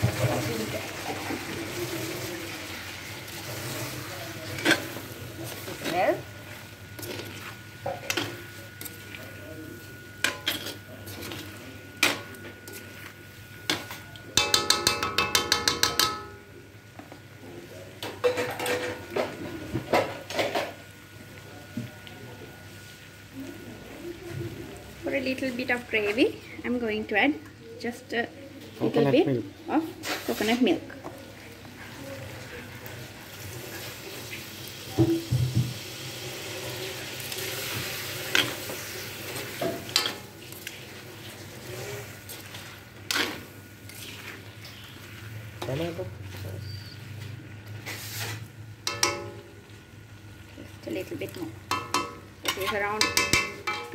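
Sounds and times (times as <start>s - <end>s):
chicken sizzling in wok: 0.0s - 16.8s, 29.5s - 53.9s
metal spoon scraping a wok: 3.5s - 6.0s, 10.2s - 13.0s, 41.6s - 45.0s, 51.7s - 53.9s
knocks against a pan: 14.4s - 16.3s.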